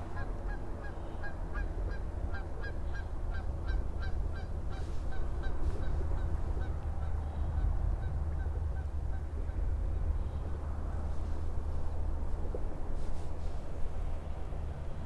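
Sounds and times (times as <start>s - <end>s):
geese honking: 0.0s - 9.6s
low steady rumble: 0.0s - 15.0s.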